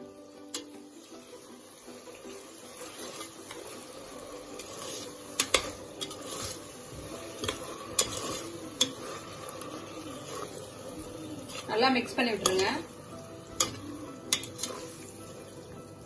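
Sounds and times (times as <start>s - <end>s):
masala sizzling in oil: 0.0s - 16.0s
metal spoon scraping in pot: 2.7s - 12.9s, 13.6s - 15.2s
spoon clinking against pot: 7.4s - 9.1s, 13.6s - 15.0s.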